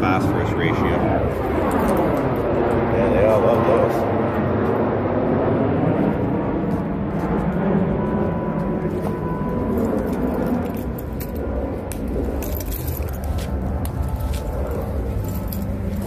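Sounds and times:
low rumble: 0.0s - 16.0s.

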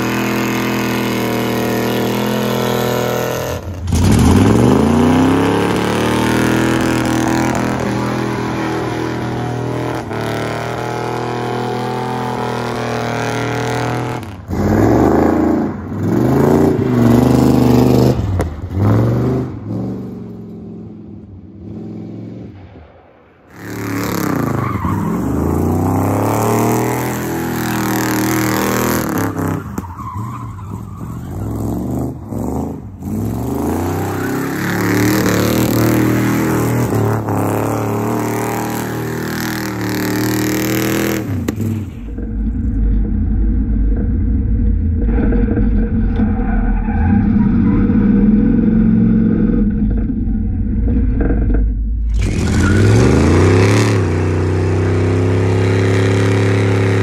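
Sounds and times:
car engine revving hard: 0.0s - 20.0s, 31.5s - 41.8s, 52.1s - 57.0s.

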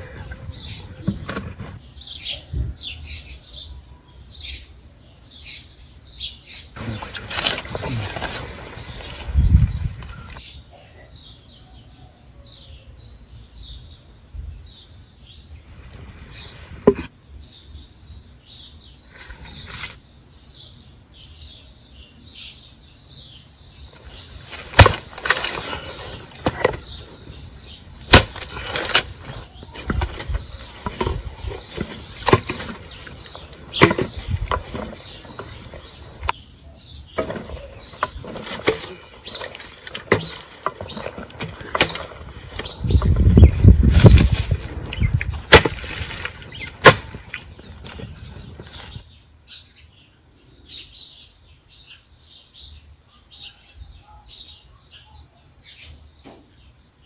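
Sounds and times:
small birds chirping: 0.0s - 57.0s
wood cracking as it splits: 6.8s - 10.4s, 24.0s - 36.4s, 37.2s - 49.0s
axe chopping wood: 24.5s - 27.2s, 28.0s - 36.4s, 37.2s - 43.3s, 43.9s - 48.1s.

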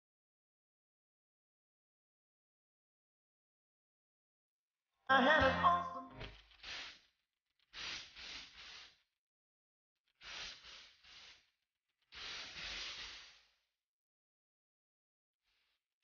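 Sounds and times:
breathy hiss-like bursts: 6.6s - 7.1s, 7.7s - 9.0s, 10.2s - 11.5s, 12.1s - 13.6s.

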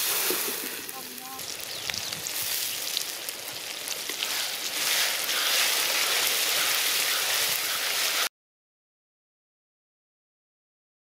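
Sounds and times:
food sizzling in a pot: 0.0s - 8.3s.

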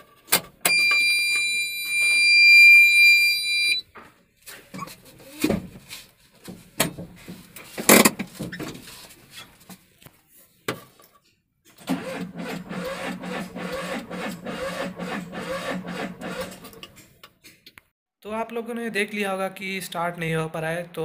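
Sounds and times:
starter motor cranking engine: 11.8s - 16.9s.

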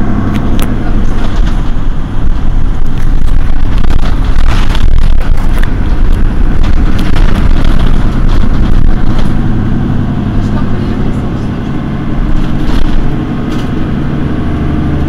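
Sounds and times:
bus diesel engine idling: 0.0s - 15.0s.

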